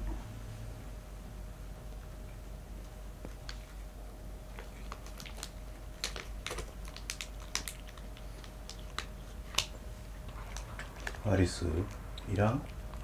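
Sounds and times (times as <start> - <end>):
kitten crunching food: 3.2 - 13.0.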